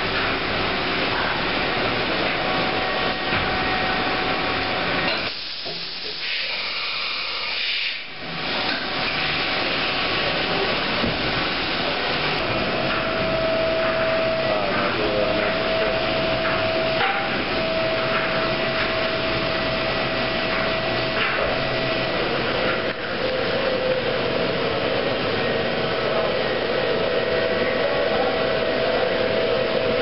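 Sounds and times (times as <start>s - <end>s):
steady machine whine: 0.0s - 30.0s
machine hiss: 5.1s - 23.2s
machine rumble: 8.2s - 30.0s.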